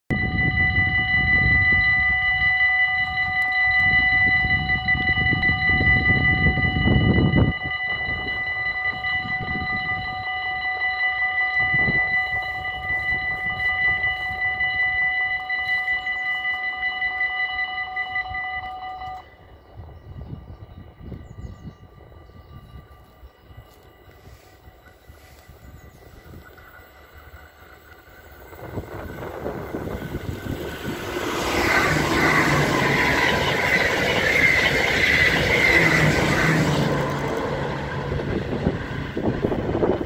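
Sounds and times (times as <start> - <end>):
level crossing warning bell ringing: 0.1 - 19.6, 20.2 - 40.0
low rumble: 25.2 - 40.0.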